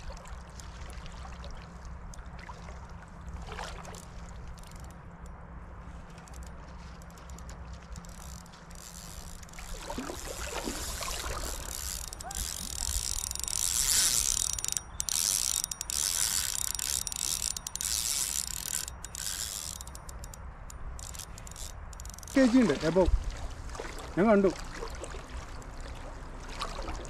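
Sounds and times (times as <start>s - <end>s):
fishing reel ratchety whirr: 6.1s - 23.1s.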